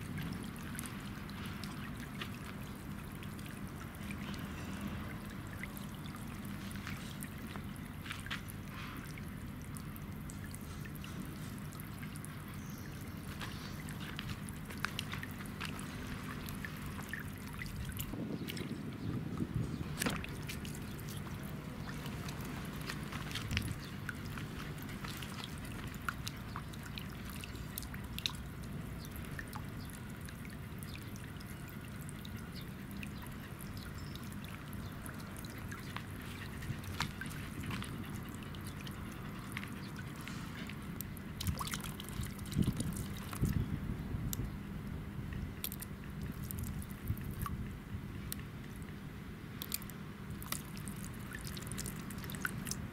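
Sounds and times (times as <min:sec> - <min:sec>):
fountain water pattering: 0:00.0 - 0:52.9
water dripping: 0:00.0 - 0:52.9.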